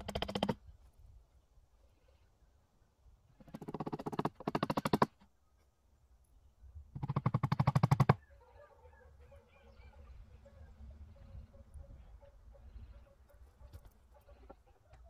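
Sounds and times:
chickens clucking: 8.2s - 15.0s.

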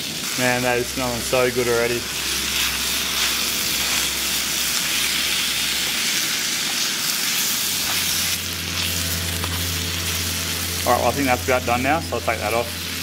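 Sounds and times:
meat and vegetables sizzling in a pan: 0.0s - 13.0s.

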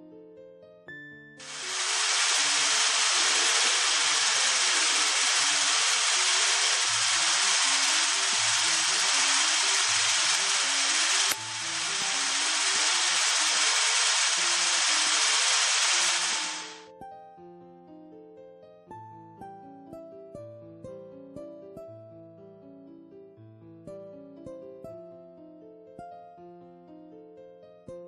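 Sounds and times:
loud steady hiss: 1.4s - 16.8s.

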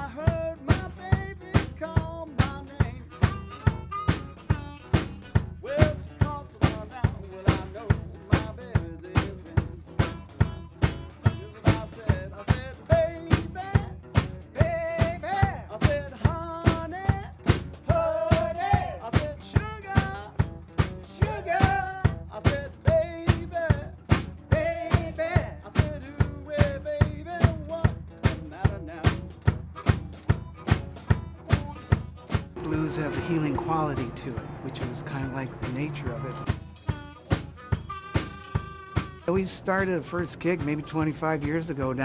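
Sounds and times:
drum kit beat: 0.0s - 42.0s
strummed acoustic guitar: 0.0s - 42.0s
harmonica melody: 3.0s - 5.9s, 9.9s - 12.9s, 29.7s - 42.0s.

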